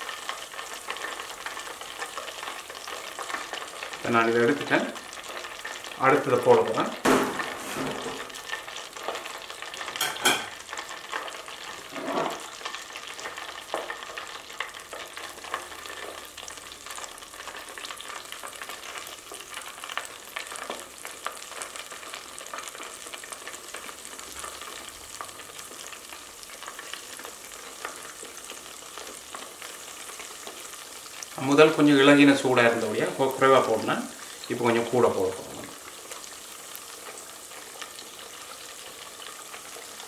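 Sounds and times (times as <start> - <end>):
oil sizzling while deep-frying: 0.0 - 40.0
loud knocks: 7.0 - 8.3.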